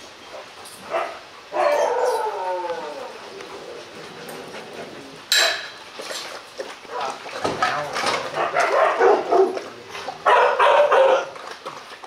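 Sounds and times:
dog lapping water: 0:03.2 - 0:12.0
metal bowl clanking: 0:05.3 - 0:06.4.

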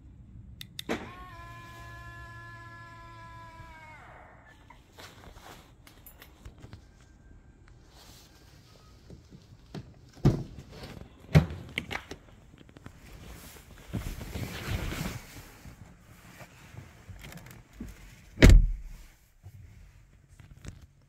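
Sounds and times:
rustling of person sitting: 0:04.5 - 0:21.0
car door shutting thump: 0:18.4 - 0:19.0.

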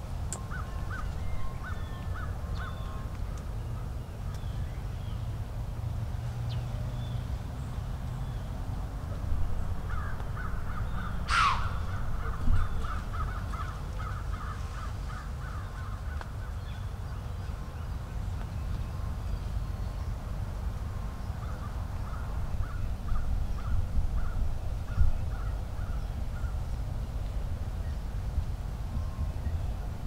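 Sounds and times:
steady low rumble: 0:00.0 - 0:30.0
crows cawing: 0:09.9 - 0:16.3
sharp falling bird call: 0:11.2 - 0:11.9.

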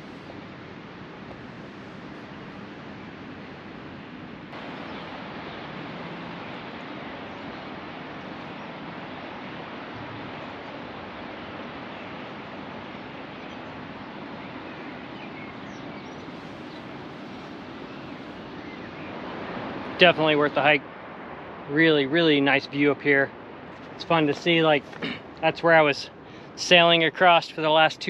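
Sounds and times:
wind: 0:00.0 - 0:28.0.

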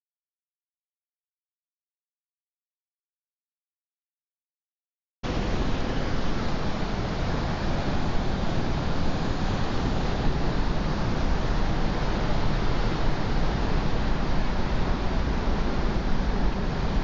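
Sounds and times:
ocean surf: 0:05.2 - 0:17.0.

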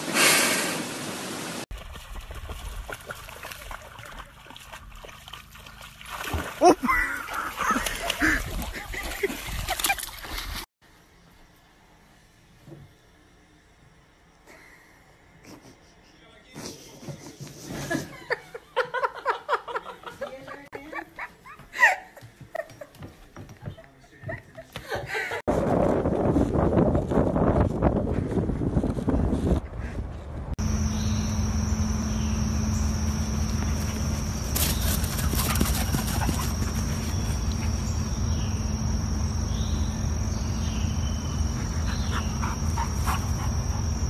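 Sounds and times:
dog paws splashing in water: 0:01.7 - 0:10.7, 0:33.0 - 0:37.9.

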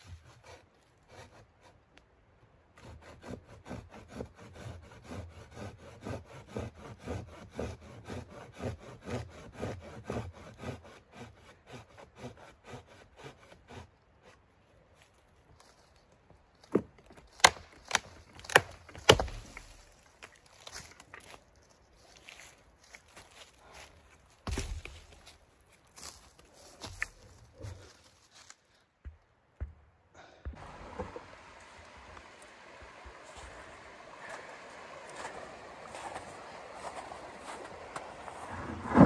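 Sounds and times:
hand saw cutting log: 0:00.0 - 0:01.8, 0:02.8 - 0:14.4, 0:17.3 - 0:20.0, 0:24.5 - 0:25.4
log cracking and splintering: 0:16.6 - 0:22.5, 0:23.1 - 0:27.7.

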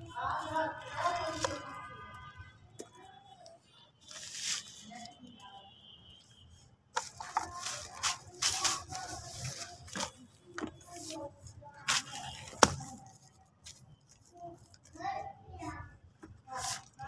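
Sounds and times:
plastic sheeting crinkling: 0:04.1 - 0:05.2, 0:07.0 - 0:14.8, 0:16.5 - 0:17.0.

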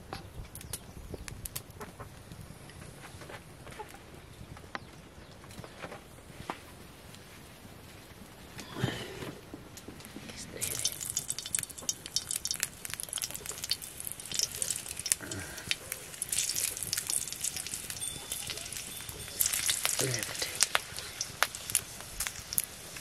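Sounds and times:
sharp crackles: 0:00.4 - 0:08.8, 0:09.4 - 0:23.0
hot oil sizzling in a wok: 0:10.5 - 0:23.0.

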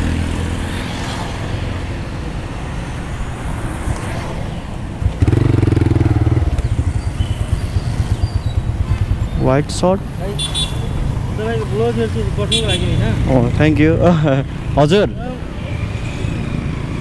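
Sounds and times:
street traffic: 0:00.0 - 0:17.0
motorcycle engine idling: 0:05.0 - 0:09.6
loud low steady tone: 0:05.2 - 0:09.0.

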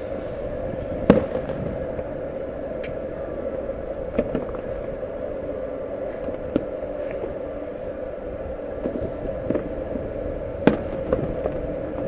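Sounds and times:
steady background hum: 0:00.0 - 0:12.0
fireworks banging: 0:01.0 - 0:01.8, 0:10.6 - 0:11.4.

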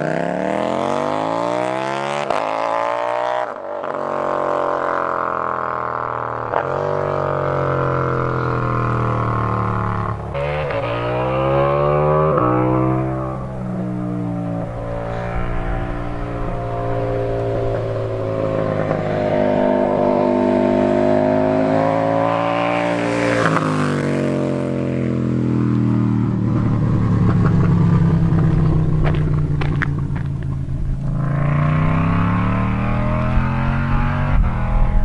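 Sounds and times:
motorcycle accelerating past: 0:00.0 - 0:35.0.

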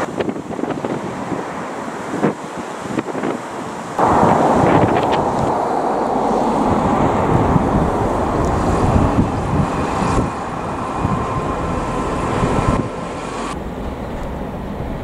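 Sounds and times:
wind noise on microphone: 0:00.0 - 0:15.0
train rumbling past: 0:04.0 - 0:15.0.

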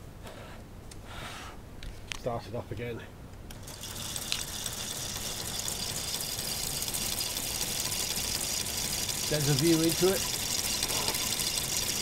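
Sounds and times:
whirring plastic model engine: 0:03.5 - 0:12.0.

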